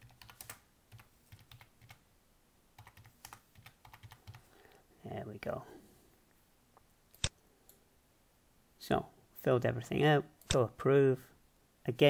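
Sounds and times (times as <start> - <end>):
typing on computer keyboard: 0.0 - 2.0, 2.8 - 4.5.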